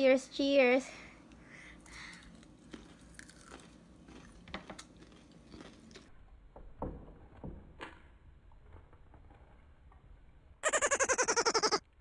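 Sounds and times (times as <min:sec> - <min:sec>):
cucumber sticks being chewed: 0:01.8 - 0:06.1.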